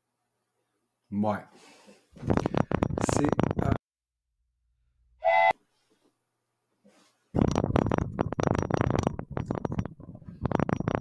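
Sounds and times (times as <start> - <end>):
crackling microphone handling noise: 2.2 - 3.8, 7.4 - 11.0.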